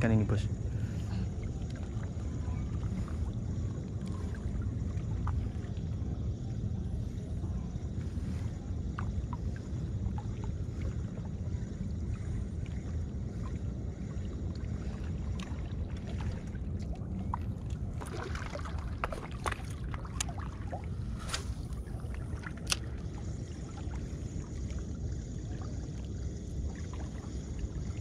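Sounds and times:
wind rumble: 0.0 - 28.0
water lapping against rocks: 10.6 - 23.6
small clicks and ticks: 22.6 - 23.0.

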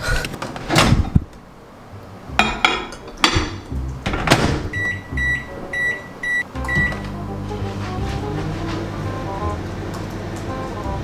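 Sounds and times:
doors shutting: 0.3 - 1.5, 2.5 - 11.0
microwave oven beeping: 4.7 - 11.0.

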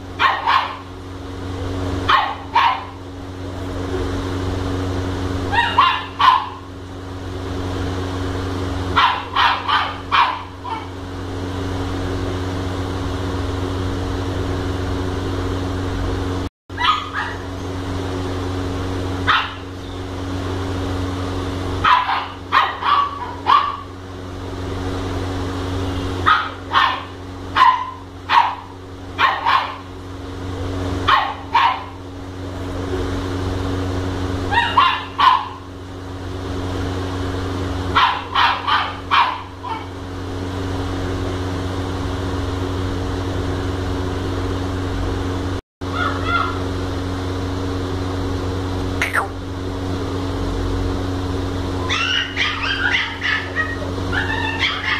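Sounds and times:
steady low hum: 0.0 - 54.9
puppy barking: 0.2 - 0.9, 2.0 - 3.0, 5.5 - 6.7, 9.0 - 11.0, 16.8 - 17.6, 19.2 - 19.7, 21.8 - 23.9, 26.2 - 29.9, 31.0 - 32.0, 34.5 - 35.7, 37.9 - 39.9, 45.9 - 46.6, 51.8 - 54.9.

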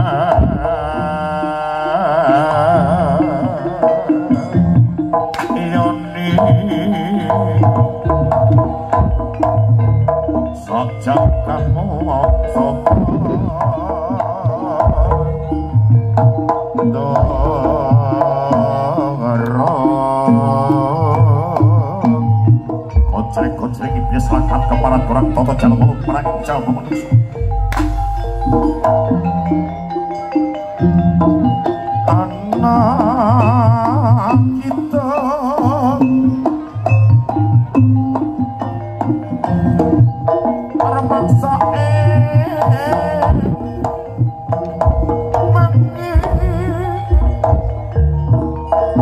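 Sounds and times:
hand drums beating: 0.0 - 49.0
wavering vibrato melody: 0.0 - 49.0
deep sustained low tone: 23.0 - 29.3.

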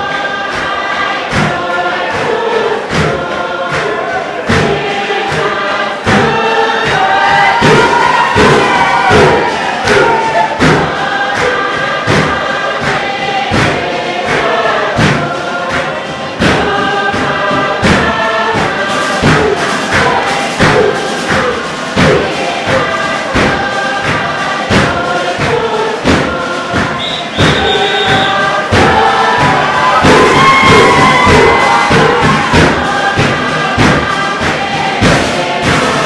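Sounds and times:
group singing in harmony: 0.0 - 36.0
wooden box drum beat: 0.1 - 36.0.

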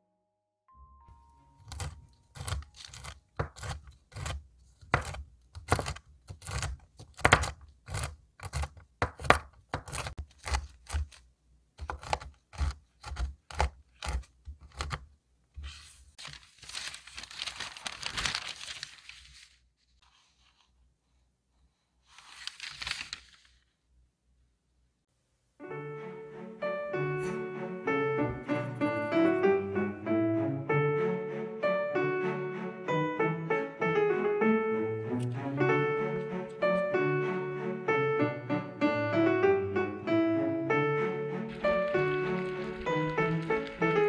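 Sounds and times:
parchment paper rustling: 1.4 - 23.8, 41.4 - 44.0
knife chopping nuts on wooden board: 1.7 - 11.2, 11.8 - 15.1
scraping and rustling: 41.5 - 44.0.

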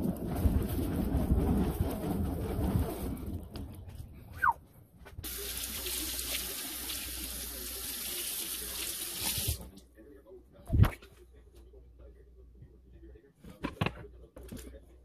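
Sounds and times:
kitchen faucet running: 5.2 - 9.7.

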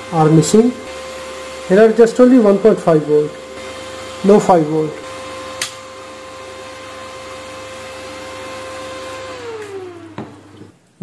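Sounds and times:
welding machine hum and whine: 0.0 - 6.2
welding machine switch click: 5.6 - 5.8.

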